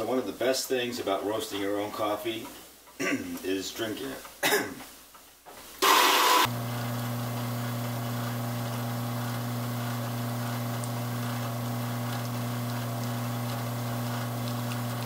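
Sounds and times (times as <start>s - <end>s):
espresso machine pump humming: 5.8s - 15.0s.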